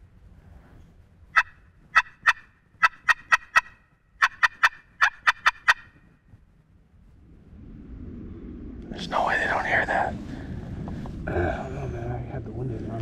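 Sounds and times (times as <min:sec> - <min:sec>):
turkey yelping: 0:01.4 - 0:06.0.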